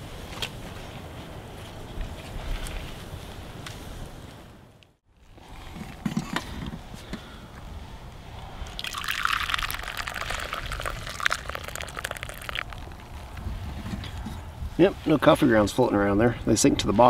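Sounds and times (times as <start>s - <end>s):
coffee pouring into cup: 8.7s - 13.0s.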